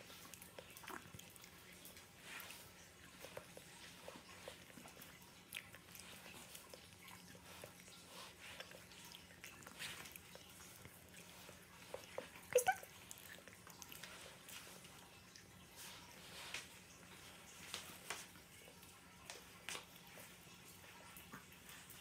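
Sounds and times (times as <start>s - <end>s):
puppy chewing: 0.0s - 22.0s
puppy whining: 3.2s - 14.3s.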